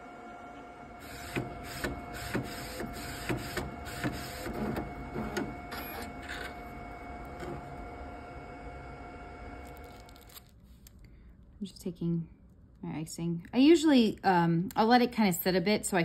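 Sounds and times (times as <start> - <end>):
steady machine hum: 0.0 - 10.2.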